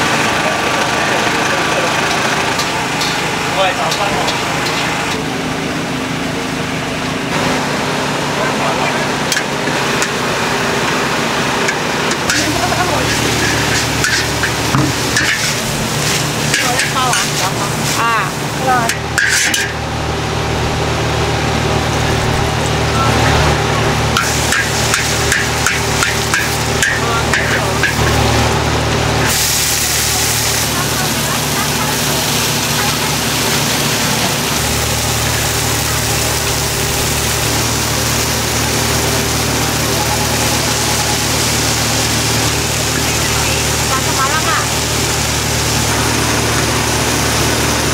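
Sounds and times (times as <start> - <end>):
gas burner roaring: 0.0 - 47.9
steady low hum: 0.0 - 47.9
food sizzling: 1.2 - 6.0, 9.2 - 47.9
metal spatula scraping wok: 2.1 - 3.5, 12.1 - 19.8, 24.1 - 36.0.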